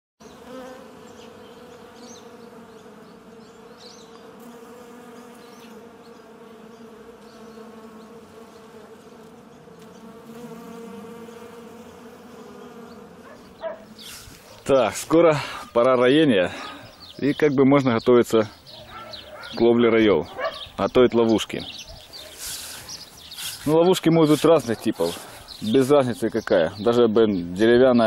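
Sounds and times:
honeybees buzzing: 0.2 - 28.0.

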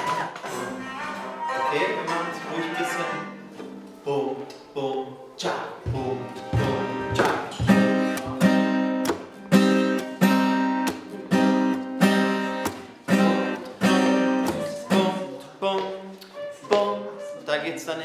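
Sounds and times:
acoustic guitars strumming chords: 0.0 - 17.4.

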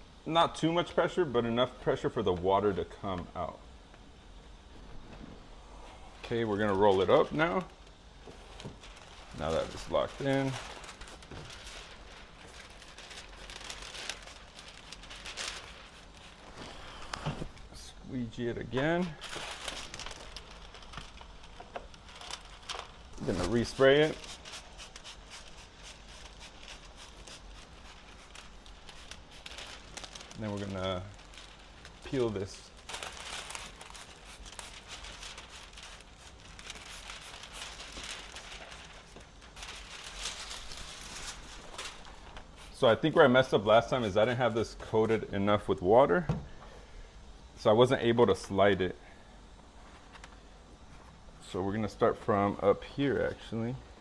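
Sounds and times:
plastic film rustling: 4.7 - 46.2.

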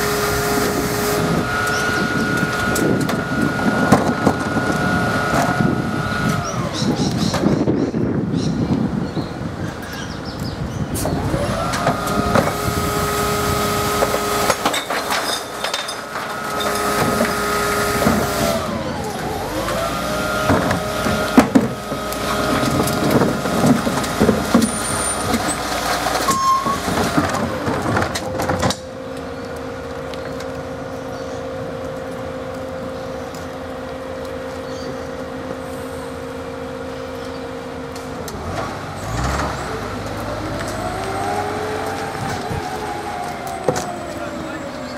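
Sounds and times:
garbage truck engine whining: 0.0 - 9.9, 10.6 - 44.9
rubbish clattering into hopper: 0.6 - 5.8, 11.0 - 28.9.

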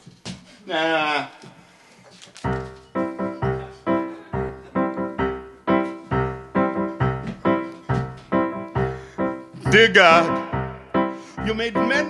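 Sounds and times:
piano playing repeated chords: 2.4 - 12.0.

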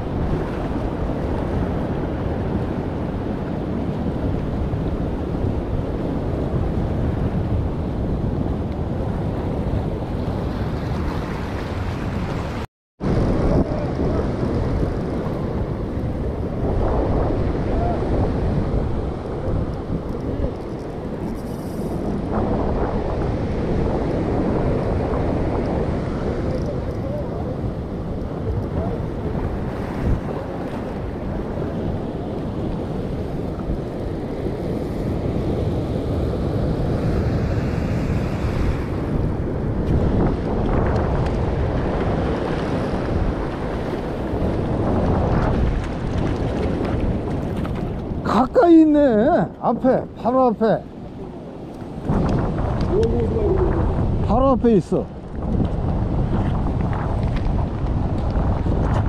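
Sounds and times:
wind buffeting microphone: 0.0 - 59.0
surf breaking over rocks: 21.8 - 59.0.

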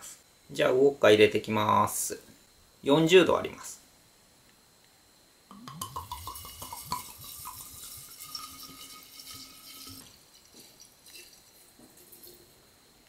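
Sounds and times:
dripping: 5.7 - 12.4
liquid pouring into glass jar: 5.7 - 12.5.

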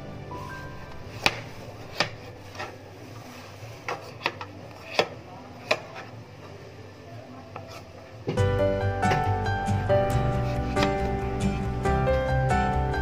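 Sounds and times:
knife paring fruit skin: 0.9 - 6.2.

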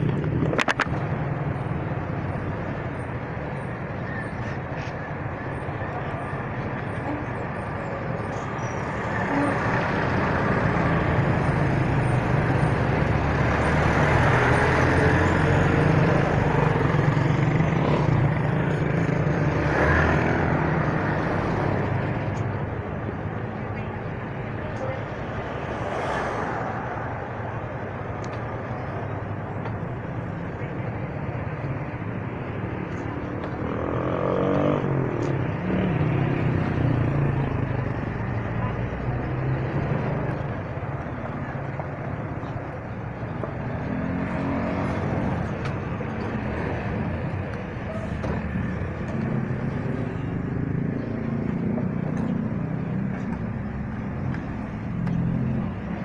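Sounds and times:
road and wind noise: 0.0 - 56.0.

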